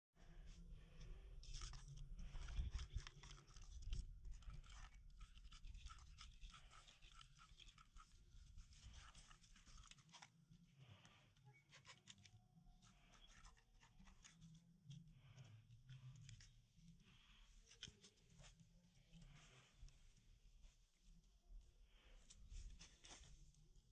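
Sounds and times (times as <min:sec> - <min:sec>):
cat claws scratching bark: 0:01.6 - 0:10.2.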